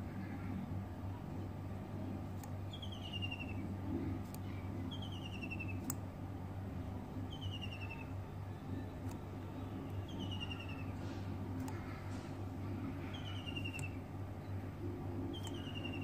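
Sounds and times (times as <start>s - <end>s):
steady low hum: 0.0s - 16.0s
bird trilling: 2.7s - 3.7s, 4.4s - 5.9s, 7.2s - 8.2s, 9.8s - 11.0s, 11.7s - 14.6s, 15.2s - 16.0s.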